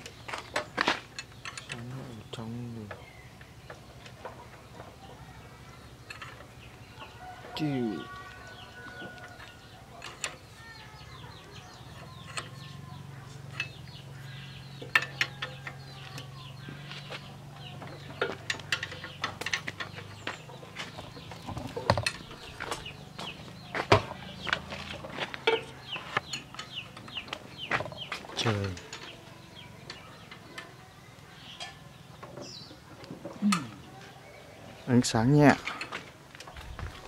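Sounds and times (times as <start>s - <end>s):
tools clinking on metal engine: 0.6s - 2.0s, 6.0s - 30.8s, 31.4s - 32.6s, 35.6s - 36.0s.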